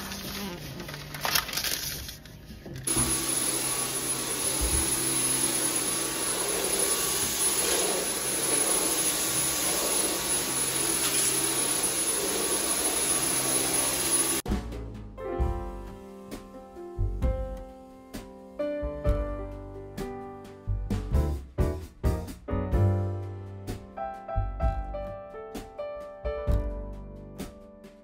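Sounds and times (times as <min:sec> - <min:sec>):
vacuum cleaner running: 0:02.9 - 0:14.4.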